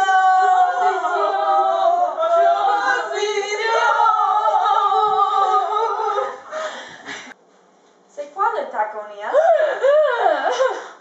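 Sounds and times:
voices singing together: 0.0s - 6.6s.

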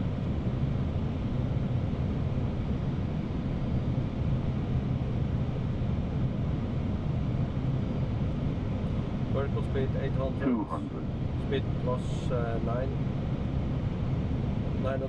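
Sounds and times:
low hum: 10.2s - 11.8s.

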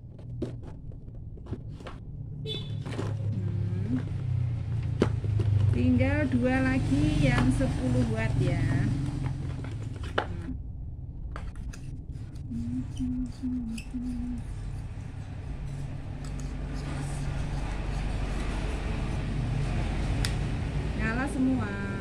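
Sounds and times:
steady low hum: 0.0s - 22.0s
plastic bulbs clicking and scraping: 11.4s - 12.5s.

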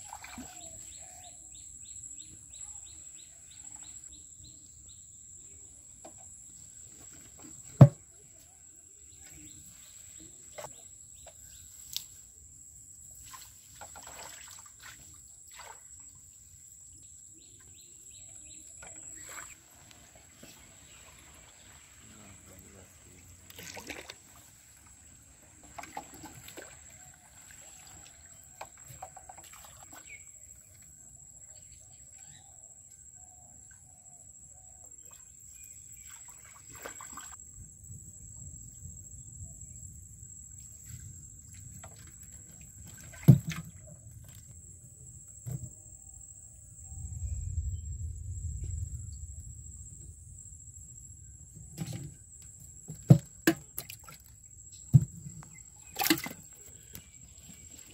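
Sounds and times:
knocks on wooden boat: 7.8s - 8.0s.

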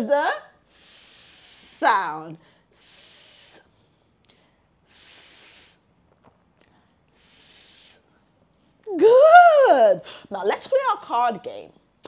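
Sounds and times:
woman making hissing s sound: 0.6s - 2.0s, 2.7s - 3.7s, 4.8s - 5.9s, 7.1s - 8.1s.

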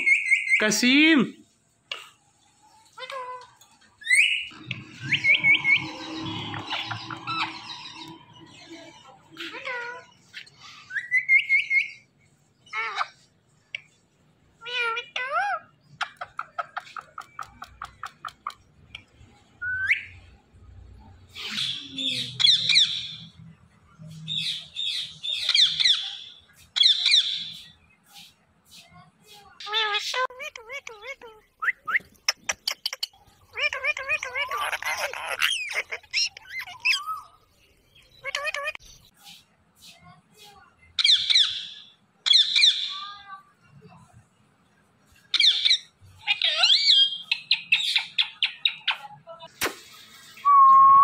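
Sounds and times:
parrot chirping and squawking: 2.6s - 12.0s, 12.6s - 13.3s, 14.6s - 18.7s, 21.3s - 23.3s, 24.4s - 27.7s, 29.6s - 37.4s, 38.0s - 39.1s, 41.0s - 43.1s, 45.2s - 49.1s
parakeet chirping and whistling: 4.0s - 8.4s.

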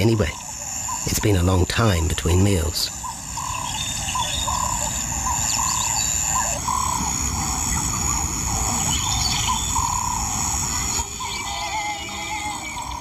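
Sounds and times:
high insect drone: 0.0s - 13.0s
bird whistled call: 3.0s - 13.0s.

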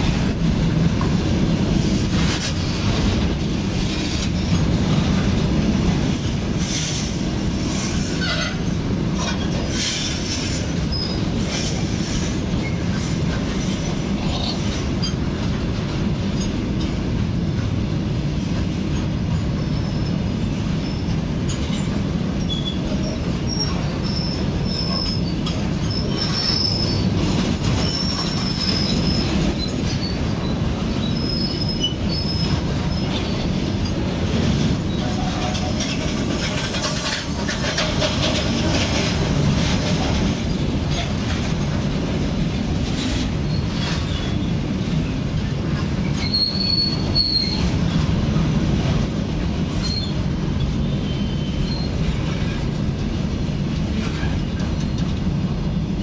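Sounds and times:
clanks over rail joints: 0.0s - 55.4s
steel wheels rumbling on rails: 0.0s - 56.0s
high wheel squeals: 22.4s - 27.2s, 27.8s - 33.5s, 46.1s - 47.7s, 50.8s - 52.6s.

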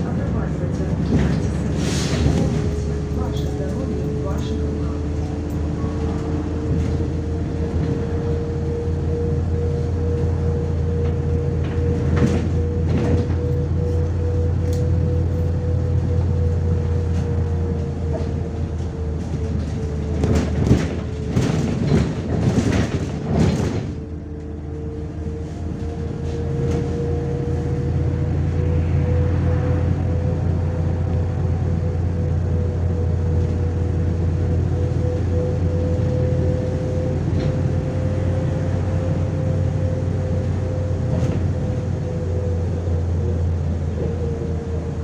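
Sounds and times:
bus engine drone: 0.0s - 45.0s
constant whine: 0.0s - 45.0s.

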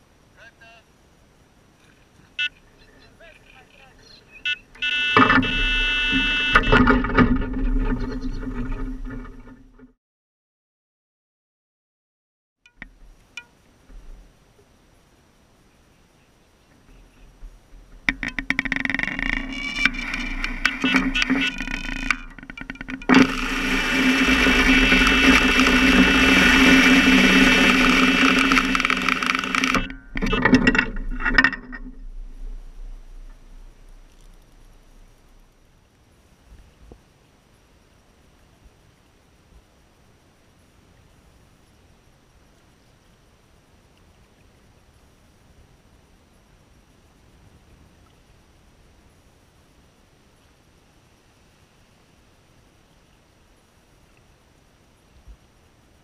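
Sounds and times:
bite alarm beeping: 2.4s - 7.1s, 19.2s - 30.4s
short broken electronic sounds: 2.4s - 9.6s, 18.2s - 35.6s
fishing line running off reel: 4.4s - 9.6s, 18.0s - 35.6s.

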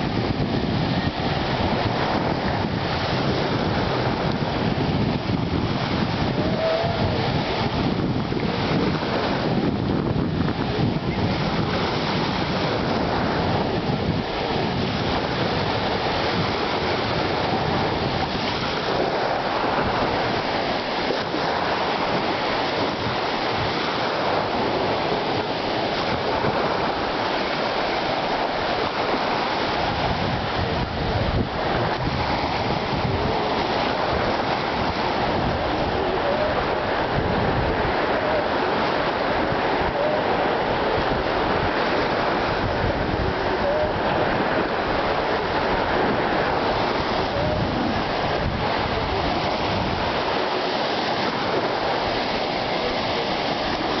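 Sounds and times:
waves washing over shore: 0.0s - 54.0s.

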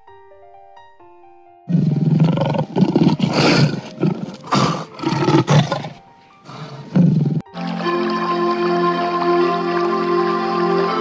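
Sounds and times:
soft music notes: 0.0s - 11.0s
large animal roaring: 1.7s - 7.4s.

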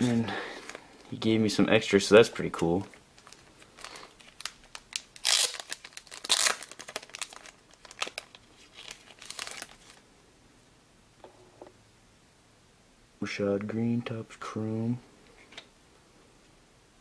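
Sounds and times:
plastic wrapping crinkling: 2.5s - 10.0s.

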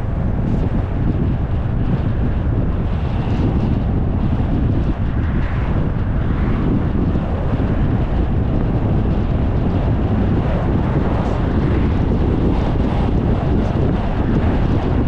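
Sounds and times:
wind rushing over microphone: 0.0s - 15.0s
car road noise: 4.1s - 15.0s.

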